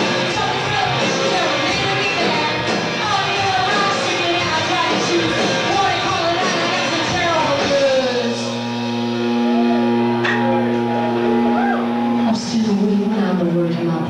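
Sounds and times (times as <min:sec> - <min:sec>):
woman singing: 0:00.0 - 0:08.5, 0:12.2 - 0:14.0
live rock band: 0:00.0 - 0:13.5
electric guitar: 0:00.0 - 0:14.0.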